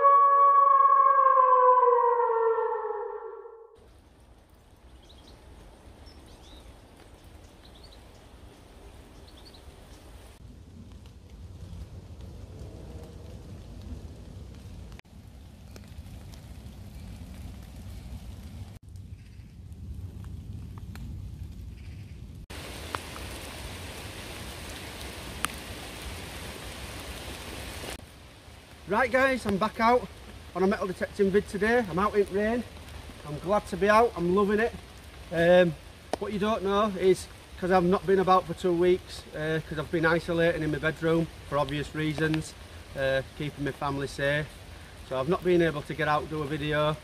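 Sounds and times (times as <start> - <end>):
falling siren-like tone: 0.0 - 3.8
light rain on leaves: 3.8 - 47.0
low rumble: 10.4 - 22.4.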